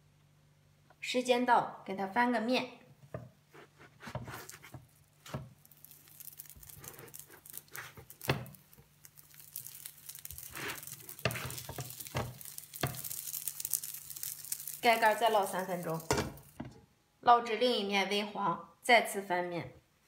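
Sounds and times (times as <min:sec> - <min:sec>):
spatula knocks and scrapes: 0:03.1 - 0:05.6, 0:10.7 - 0:13.2
buns sizzling on griddle: 0:03.5 - 0:16.6.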